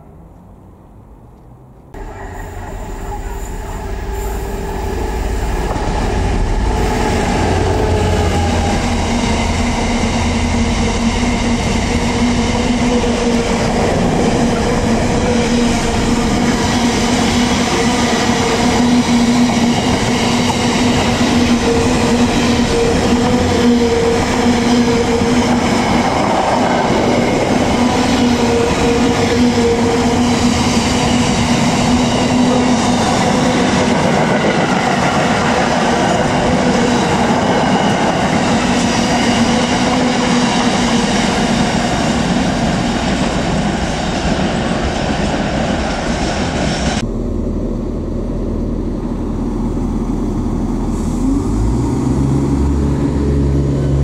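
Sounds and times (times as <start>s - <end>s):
diesel locomotive engine rumble: 0.0s - 54.0s
train wheels clattering on rails: 11.4s - 47.0s.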